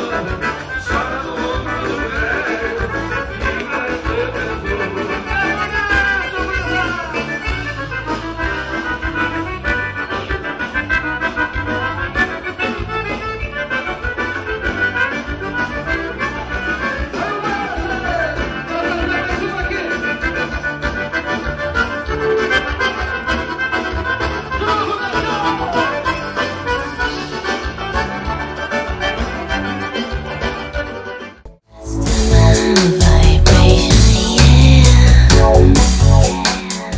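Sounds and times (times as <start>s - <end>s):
accordion: 0.0s - 36.9s
steady bass beat: 31.8s - 36.9s.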